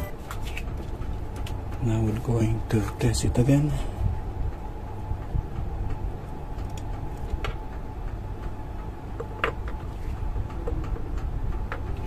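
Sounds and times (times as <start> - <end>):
low background hum: 0.0 - 12.0.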